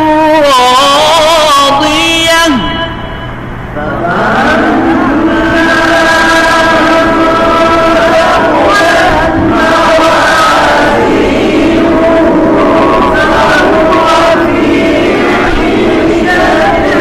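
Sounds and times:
melodic chanted recitation: 0.0 - 17.0.

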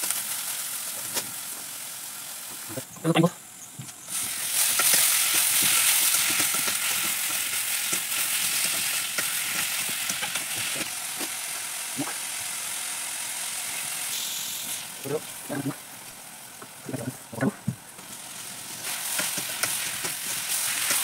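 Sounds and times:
potatoes sizzling in hot oil: 0.0 - 17.2, 17.9 - 21.0
utensils scraping a wok: 4.1 - 10.9.

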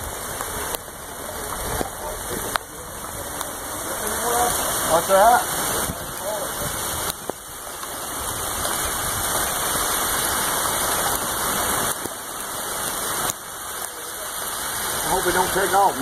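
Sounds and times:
wind gusting over microphone: 3.7 - 12.0.

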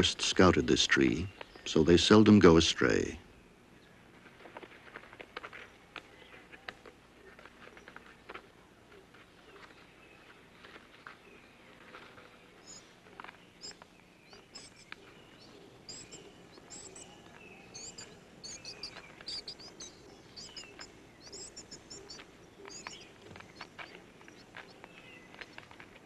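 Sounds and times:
low background hiss: 0.0 - 26.0
high-pitched animal chirps: 15.9 - 17.1, 17.7 - 23.0.

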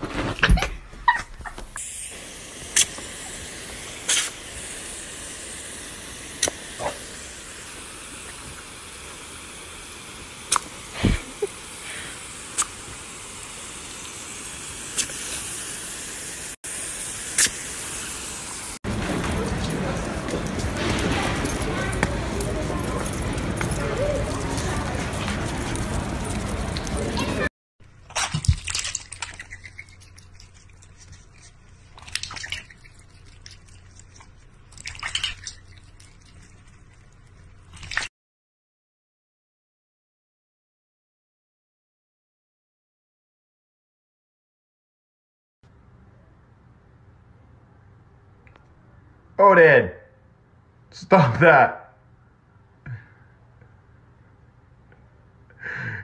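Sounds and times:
hose nozzle spraying water: 1.7 - 18.8, 28.0 - 38.1
water splashing in metal bowl: 28.0 - 38.1
faint water drips: 28.2 - 38.1.

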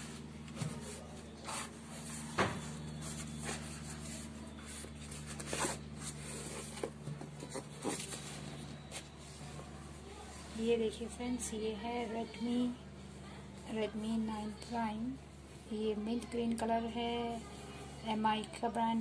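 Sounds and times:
cardboard packaging rustling: 0.8 - 8.6.

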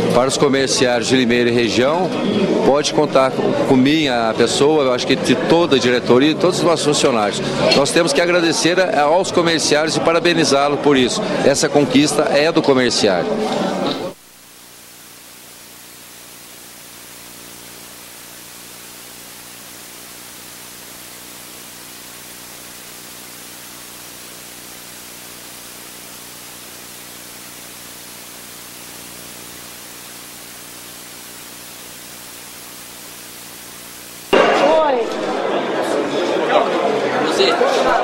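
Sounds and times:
thin high whine: 13.4 - 35.5
recording hiss: 13.8 - 35.0.

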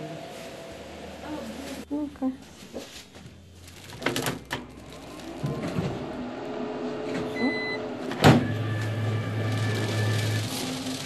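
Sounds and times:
plastic film crinkling: 2.9 - 5.6, 9.4 - 11.0
machine motor running: 4.7 - 11.0.

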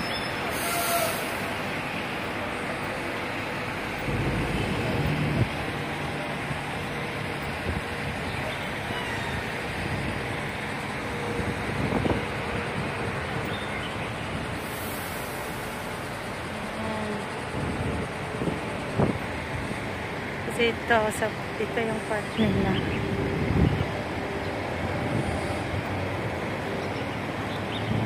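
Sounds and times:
hum of passing vehicles: 1.2 - 28.0
louder engine going by: 3.8 - 7.0.

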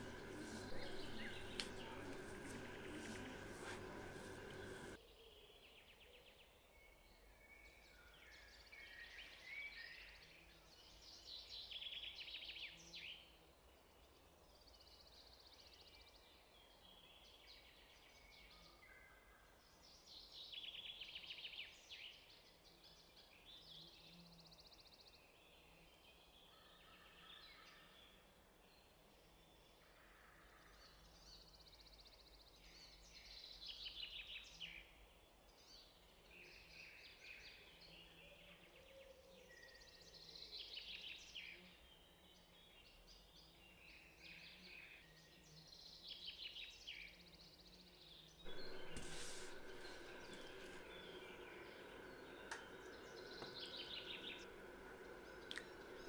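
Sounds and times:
low steady hum: 0.0 - 5.0, 48.5 - 56.0
faint birdsong chirps and trills: 0.0 - 56.0.

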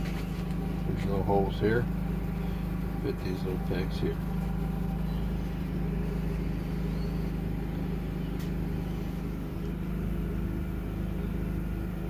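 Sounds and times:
machine humming: 0.0 - 12.0
light click: 8.4 - 8.6.

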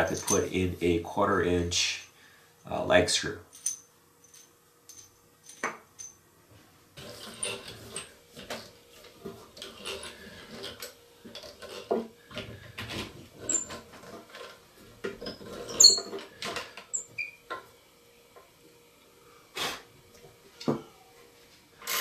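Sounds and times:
hand drill gears clicking and squeaking: 0.0 - 0.5, 13.4 - 13.8, 15.2 - 16.2, 16.9 - 17.4
faint steady whine: 0.0 - 22.0.

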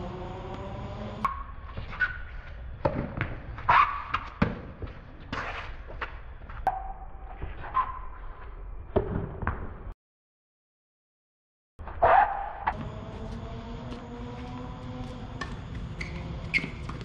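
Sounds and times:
rackets striking tennis ball: 12.7 - 17.0
tennis ball bouncing: 12.7 - 17.0.

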